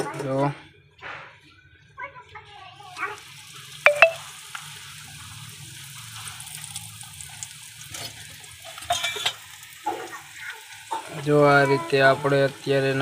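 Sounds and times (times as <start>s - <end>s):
bread sizzling in oil: 2.7s - 13.0s.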